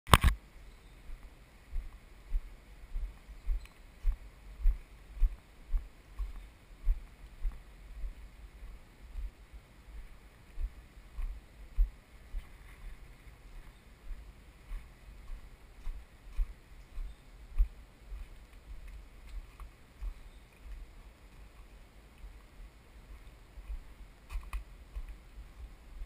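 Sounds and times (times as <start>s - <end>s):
faint outdoor background: 0.1s - 26.0s
walking footsteps thudding: 1.8s - 9.4s, 10.0s - 13.0s, 13.6s - 20.8s.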